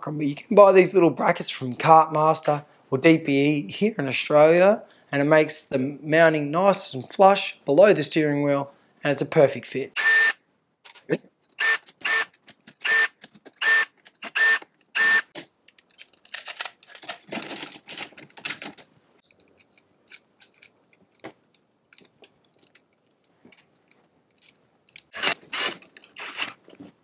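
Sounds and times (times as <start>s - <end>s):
cordless drill whirring: 10.0s - 10.4s, 11.6s - 15.3s, 25.2s - 26.6s.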